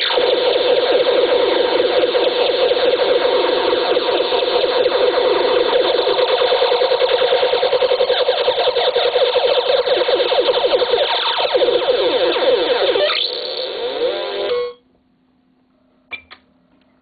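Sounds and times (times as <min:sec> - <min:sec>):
electronic chirps: 0:00.0 - 0:14.8
glitchy electronic buzzing: 0:00.0 - 0:14.8.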